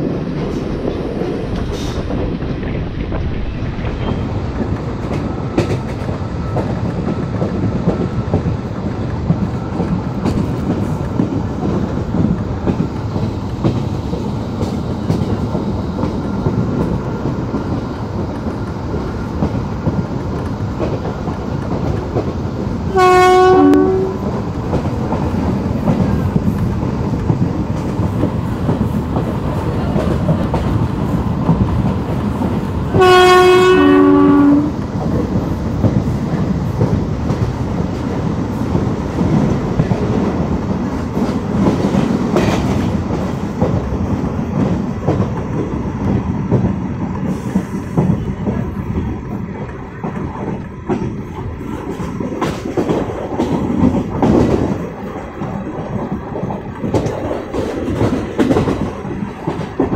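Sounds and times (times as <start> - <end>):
rush of air: 0.0 - 5.6
train wheels rumbling on rail: 0.0 - 59.9
train horn blast: 22.9 - 24.3, 32.9 - 34.8.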